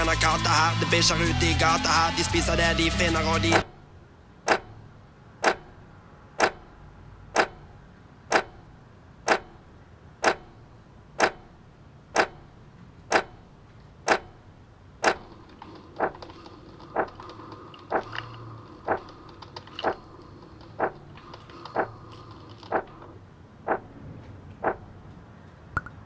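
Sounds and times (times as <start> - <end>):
wall clock ticking: 6.4 - 6.7, 7.3 - 7.7, 8.3 - 8.6, 9.2 - 9.6, 10.2 - 10.6, 11.2 - 11.5, 12.1 - 12.5, 13.1 - 13.4, 14.0 - 14.4, 23.7 - 23.9.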